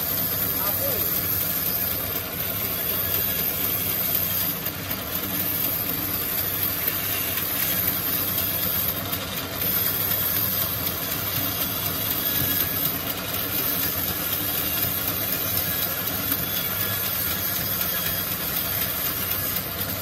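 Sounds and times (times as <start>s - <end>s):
bandsaw cutting timber: 0.0s - 9.0s.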